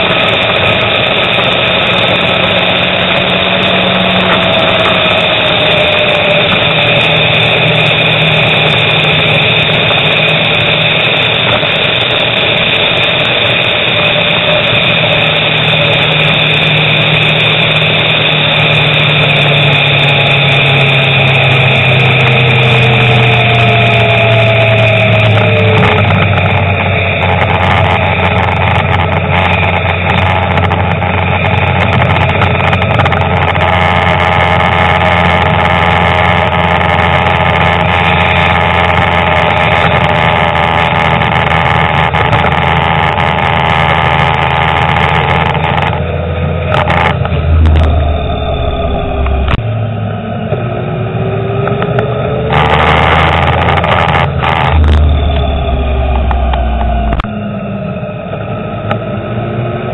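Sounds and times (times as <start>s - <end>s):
car engine: 0.0s - 59.9s
road noise inside car: 0.0s - 59.9s.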